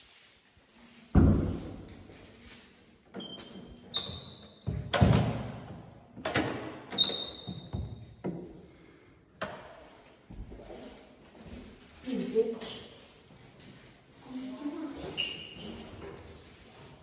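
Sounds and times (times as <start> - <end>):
footsteps on hard floor: 0.0 - 2.6, 9.7 - 14.1
short high squeaks: 7.0 - 7.6.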